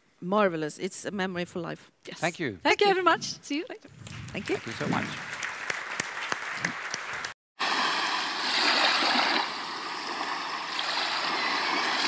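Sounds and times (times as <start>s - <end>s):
scattered applause: 4.0s - 7.4s
rushing water: 7.6s - 12.0s.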